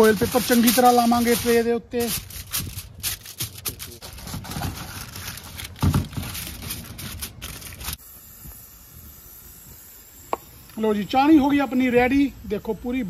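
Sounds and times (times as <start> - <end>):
aluminium foil crinkling: 0.0 - 8.0.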